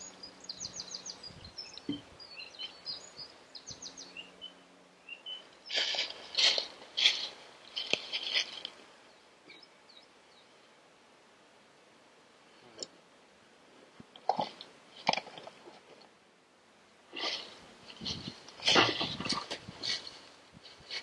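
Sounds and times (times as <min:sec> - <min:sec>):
dry leaves crunching and rustling: 0:05.6 - 0:08.8
boot scuffing through leaves: 0:05.7 - 0:08.7.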